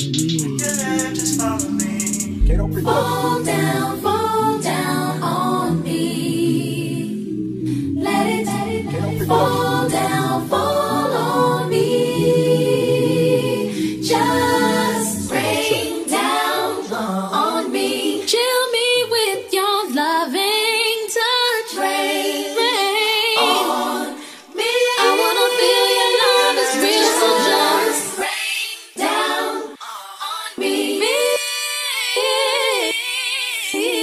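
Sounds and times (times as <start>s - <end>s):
bass and beat: 0.0s - 3.3s, 15.2s - 16.0s
layered singing voices in harmony: 0.6s - 34.0s.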